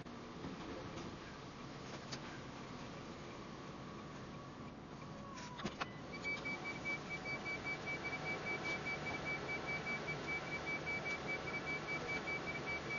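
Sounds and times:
low engine hum: 0.0 - 12.9
electronic beeping: 6.1 - 12.9.

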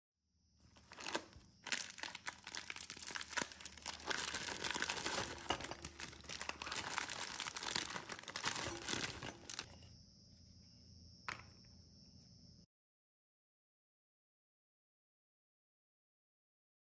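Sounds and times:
plastic wrappers crinkling: 0.7 - 9.8.

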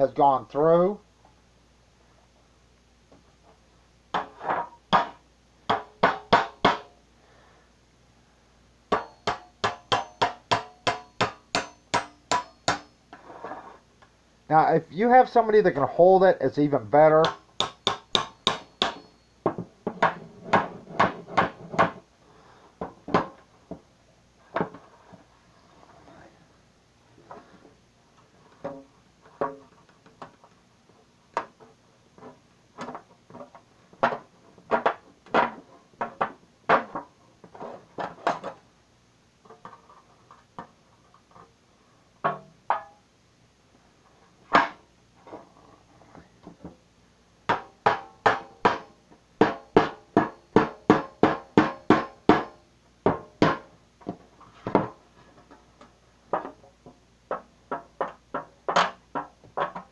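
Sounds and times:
hammer striking knife on metal: 8.9 - 13.0, 17.2 - 19.3.

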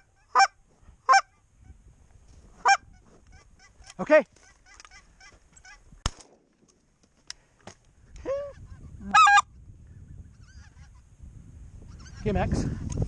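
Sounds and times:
geese honking: 0.0 - 1.4, 2.6 - 5.9, 9.1 - 9.5.

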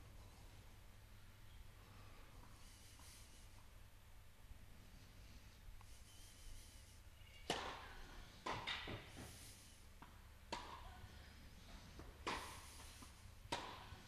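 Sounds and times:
racquet striking tennis ball: 7.4 - 9.3, 10.0 - 11.0, 11.7 - 14.0
ball bouncing: 7.5 - 9.3, 10.0 - 10.9, 13.5 - 14.0.

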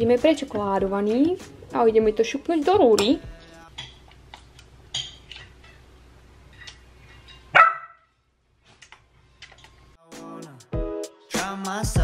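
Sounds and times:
spoon and dishes clinking: 3.0 - 4.2, 4.9 - 5.8, 6.5 - 7.5
dog barking: 7.5 - 8.1.

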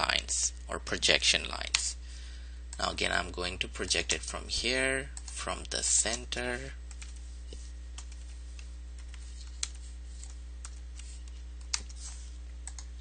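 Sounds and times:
low electrical hum: 0.0 - 13.0
computer keys and mouse clicking: 8.0 - 12.0, 12.6 - 12.9.

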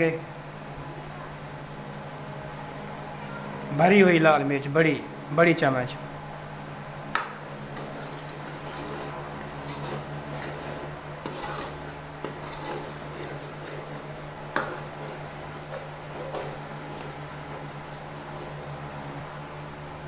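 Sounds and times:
food frying in oil: 6.0 - 20.0
metal ladle scraping a pan: 7.7 - 18.7.

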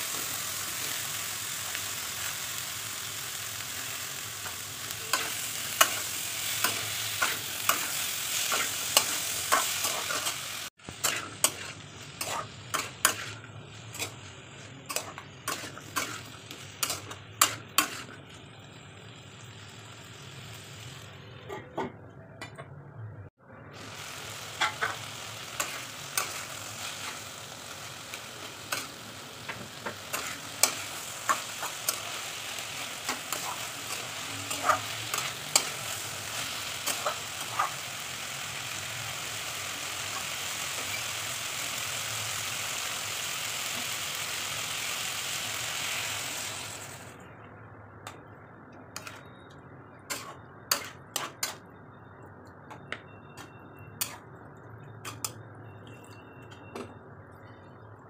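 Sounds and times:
curry sizzling in a pan: 0.0 - 21.3, 23.7 - 47.3.

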